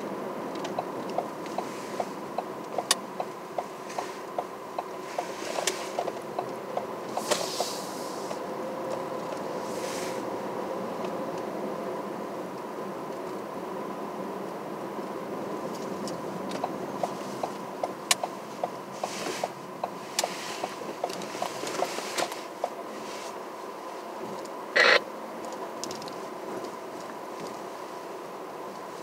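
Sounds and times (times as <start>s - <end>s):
car road and engine noise: 0.0s - 29.0s
light regular clicks: 0.5s - 7.7s.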